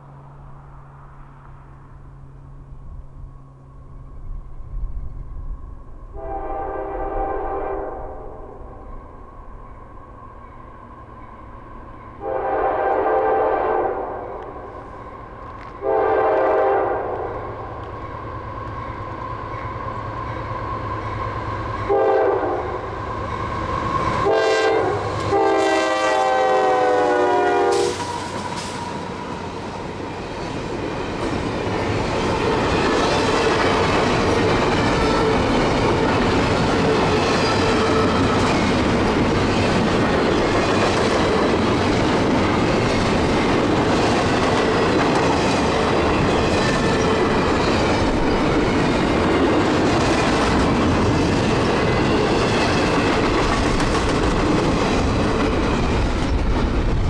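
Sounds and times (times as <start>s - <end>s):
locomotive air horn blasts: 6.1s - 8.5s, 12.2s - 14.4s, 15.8s - 17.4s, 21.8s - 22.9s, 24.2s - 29.3s
train wheels clattering on rails: 27.7s - 57.0s.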